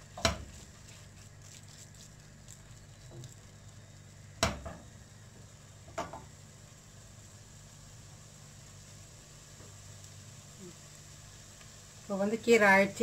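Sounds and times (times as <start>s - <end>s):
faint sizzle: 0.0s - 13.0s.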